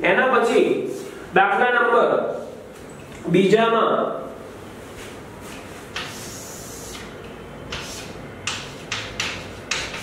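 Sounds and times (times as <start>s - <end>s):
chalk scratching on blackboard: 5.5s - 7.1s, 7.7s - 10.0s.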